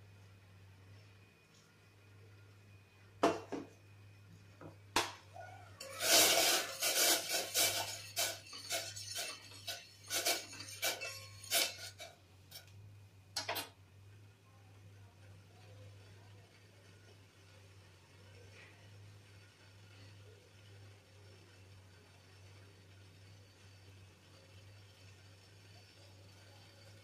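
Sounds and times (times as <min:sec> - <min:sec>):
scraping on a steel plate: 0:05.8 - 0:12.7
steel utensils clinking: 0:05.8 - 0:12.7.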